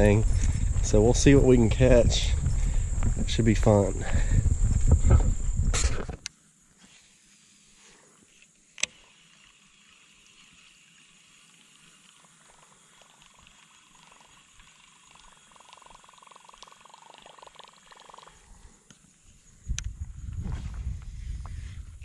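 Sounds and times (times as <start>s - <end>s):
fishing reel whirring: 8.8s - 18.7s.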